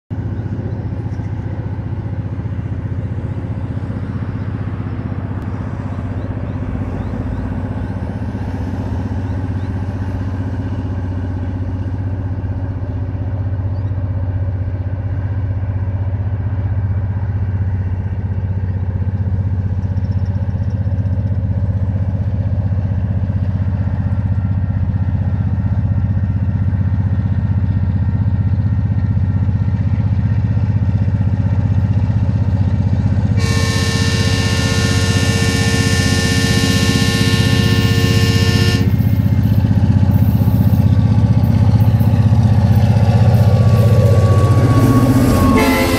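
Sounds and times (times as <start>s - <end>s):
locomotive engine drone: 0.1s - 45.9s
locomotive horn chord: 33.2s - 40.2s, 42.6s - 45.9s.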